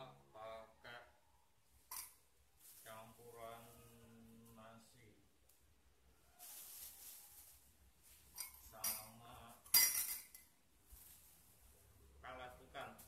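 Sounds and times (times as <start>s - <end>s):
soft rustle: 2.1s - 4.8s, 6.2s - 9.7s, 10.7s - 12.2s
utensil clinking against glass: 8.4s - 10.4s.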